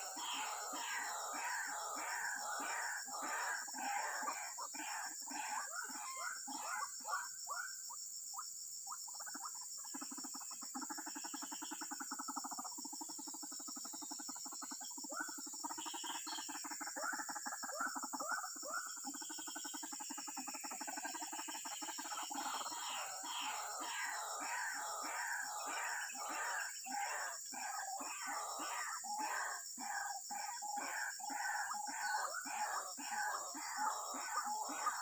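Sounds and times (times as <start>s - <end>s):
waterhens calling: 0.0s - 6.8s, 22.3s - 30.1s, 30.7s - 35.0s
insects droning: 0.0s - 35.0s.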